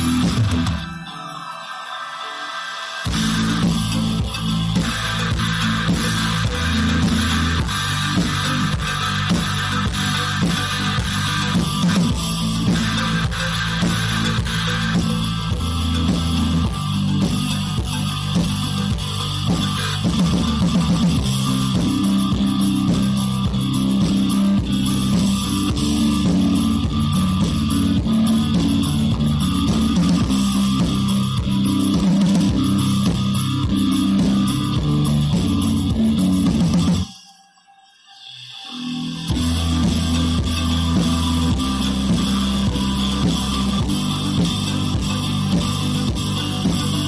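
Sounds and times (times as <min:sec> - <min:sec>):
guitar-led instrumental music: 0:00.0 - 0:37.3, 0:38.3 - 0:47.0.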